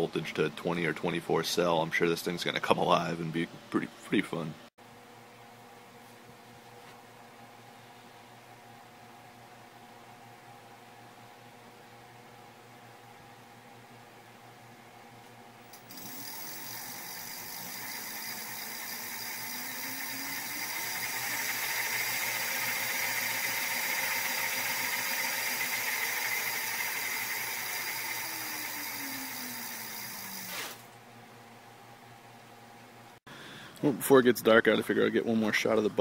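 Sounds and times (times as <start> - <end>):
electric motor whine: 15.8 - 30.8.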